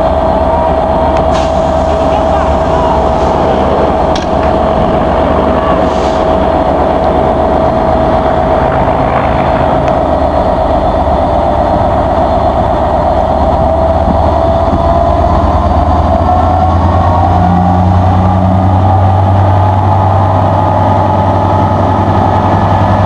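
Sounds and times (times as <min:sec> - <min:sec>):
diesel locomotive engine running: 0:00.0 - 0:23.0.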